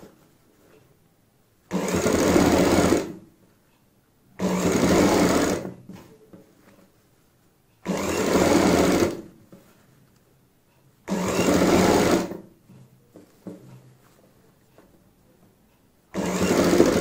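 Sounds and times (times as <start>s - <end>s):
sewing machine stitching: 1.7s - 3.2s, 4.4s - 6.1s, 7.8s - 9.3s, 11.1s - 12.5s, 16.1s - 17.0s.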